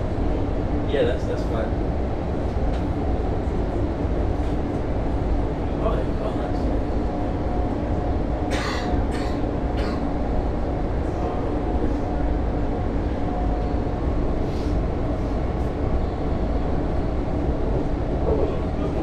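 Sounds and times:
train wheels rumbling on track: 0.0 - 19.0.

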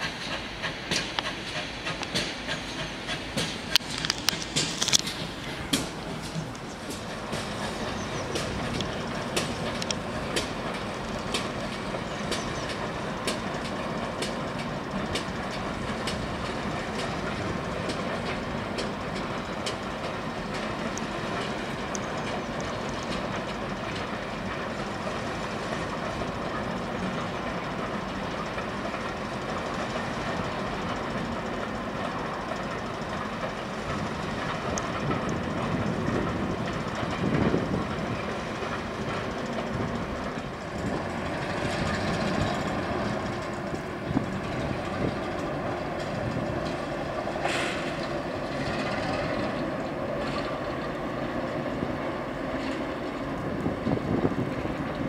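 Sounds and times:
train rumble: 0.0 - 55.0
train wheels clicking over rail joints: 0.0 - 55.0.

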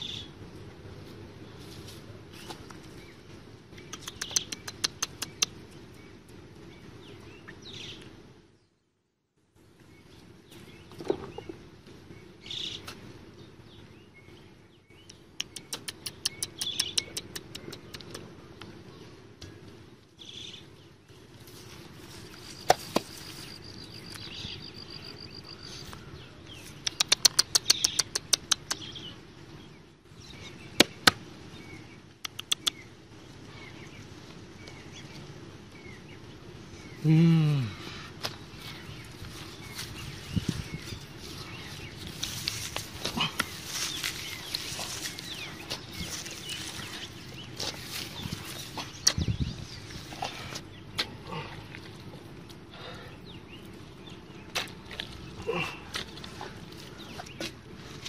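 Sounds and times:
birds chirping: 0.0 - 9.0, 9.6 - 58.0
digging tool chopping wet soil: 30.8 - 31.2.

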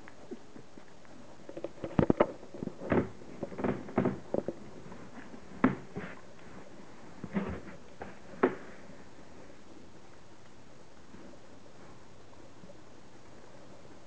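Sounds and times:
dog sniffing and snuffling: 4.7 - 9.5.

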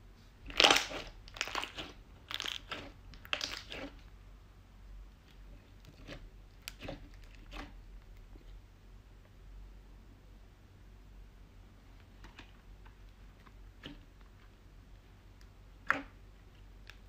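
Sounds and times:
slime squishing: 0.4 - 4.1, 5.2 - 8.6, 12.1 - 17.0.

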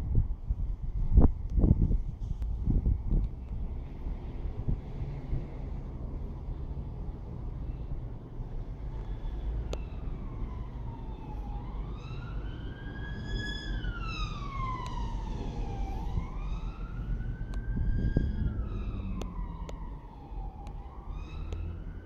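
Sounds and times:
emergency vehicle siren wailing: 8.6 - 22.0.

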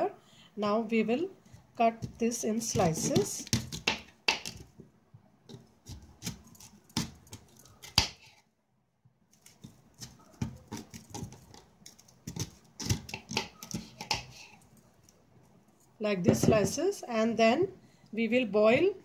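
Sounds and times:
knife slicing root: 5.8 - 8.2, 9.3 - 14.4.

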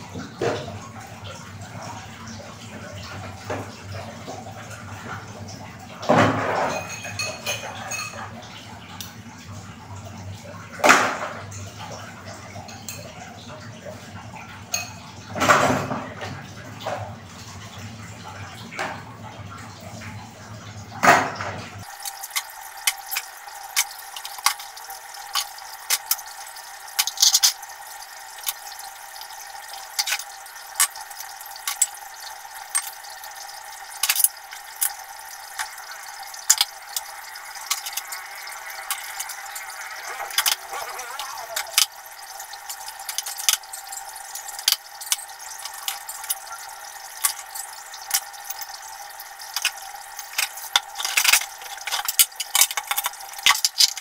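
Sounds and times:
plates and bowls clinking: 6.1 - 8.3, 21.1 - 54.0
water splashing and dripping: 14.1 - 54.0.

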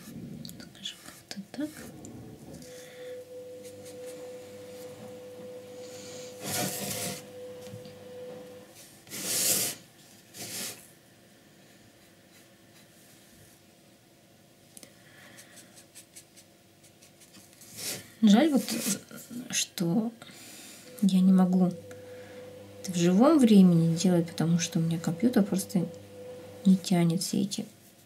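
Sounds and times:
faint steady tone: 2.6 - 8.7, 20.8 - 26.9
wooden box scraping on table: 5.9 - 7.3.

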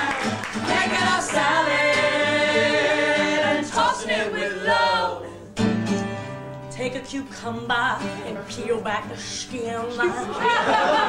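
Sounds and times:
group singing: 0.0 - 5.6.

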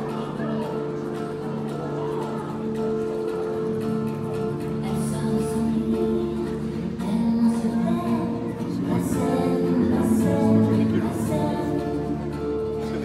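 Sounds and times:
music over sound system: 0.0 - 13.0
singing voice: 4.7 - 13.0.

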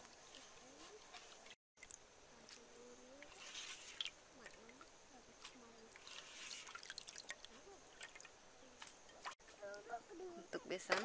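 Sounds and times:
hand swishing grains in water: 3.2 - 4.6, 5.4 - 8.2.

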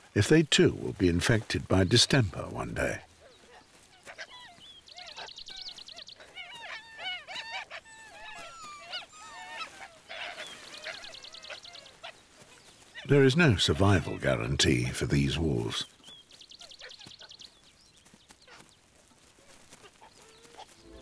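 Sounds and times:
wolves squealing and yelping: 3.1 - 14.6.

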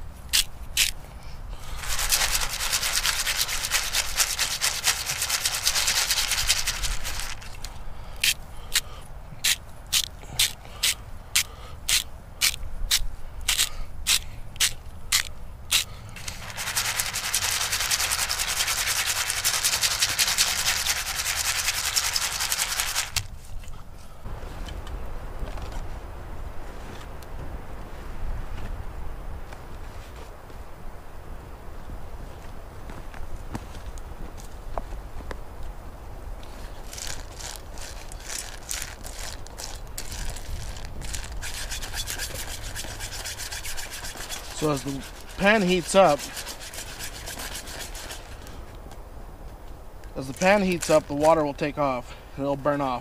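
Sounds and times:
nuts shaken in a pan: 1.8 - 7.5, 16.4 - 23.2
salt shaker shaking: 1.8 - 8.4, 15.7 - 23.2, 36.8 - 48.4.

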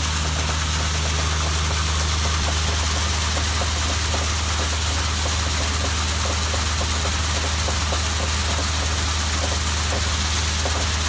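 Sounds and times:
rig engine low drone: 0.0 - 6.8
water jetting hiss: 0.0 - 11.0.

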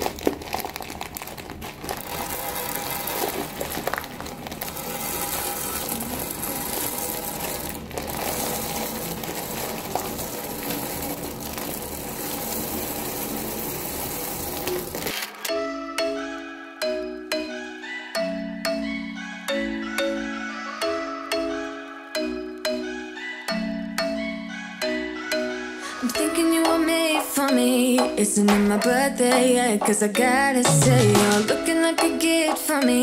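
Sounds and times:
peanuts pouring onto stone countertop: 0.0 - 15.2
plastic bag crinkling: 0.0 - 15.5.

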